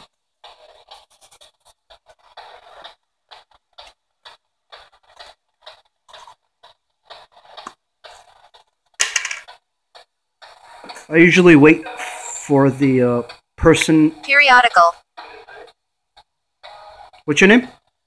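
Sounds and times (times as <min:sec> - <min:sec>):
choppy radio static fragments: 0:14.2 - 0:14.9.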